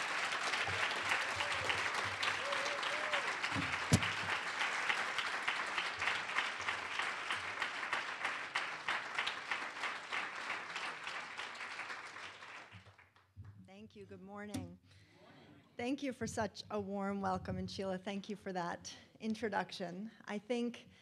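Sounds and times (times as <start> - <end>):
audience applauding: 0.0 - 13.2
sharp thump: 3.6 - 4.2.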